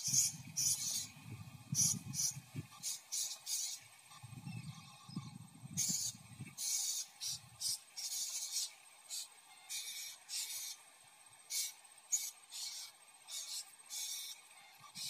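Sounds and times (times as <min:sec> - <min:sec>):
parrots giving high hissy calls: 0:00.0 - 0:01.2, 0:01.8 - 0:03.9, 0:05.8 - 0:10.8, 0:11.5 - 0:15.0.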